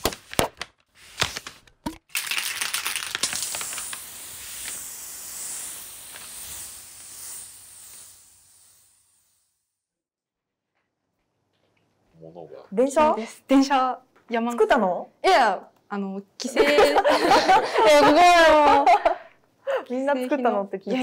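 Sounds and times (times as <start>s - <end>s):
paper tearing: 0.0s - 4.1s
paper crumpling crackle: 0.0s - 4.2s.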